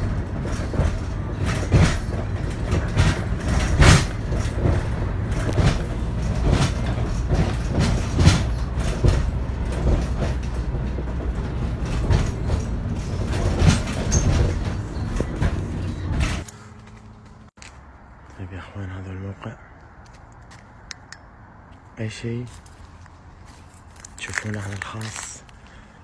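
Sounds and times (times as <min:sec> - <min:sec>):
rattles and knocks in cab: 0:00.0 - 0:16.5
engine and road rumble: 0:00.0 - 0:26.0.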